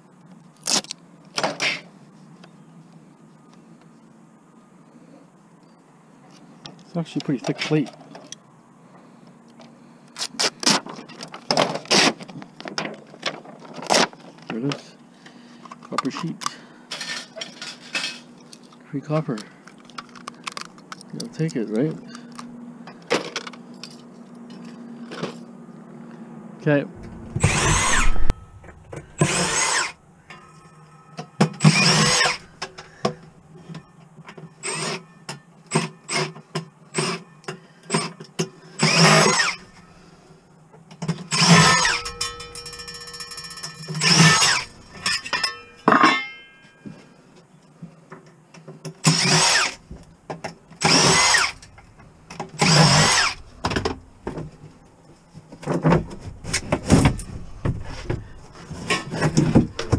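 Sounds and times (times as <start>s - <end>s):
cordless drill whine: 27.0s - 30.0s, 31.6s - 32.6s, 38.8s - 39.8s, 41.3s - 42.8s, 43.8s - 45.4s, 49.0s - 49.8s, 50.8s - 51.8s, 52.5s - 53.9s.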